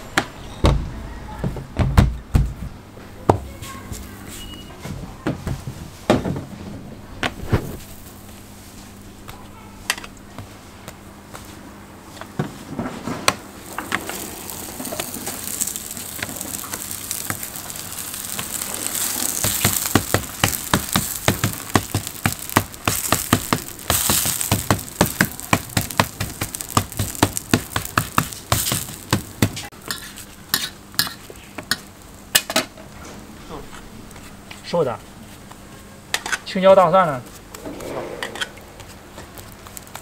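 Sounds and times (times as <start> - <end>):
dough sizzling in oil: 13.4 - 32.5, 38.8 - 40.0
sharp clicks and pops: 13.7 - 29.7.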